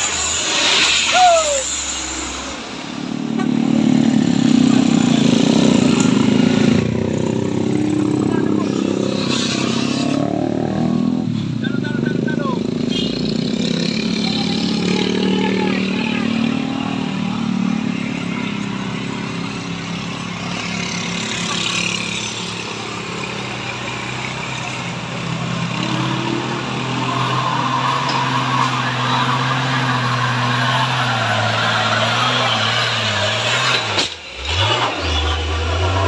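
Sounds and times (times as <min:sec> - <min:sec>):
truck diesel engine climbing: 0:00.0 - 0:36.0
motorcycle passing: 0:12.0 - 0:24.4.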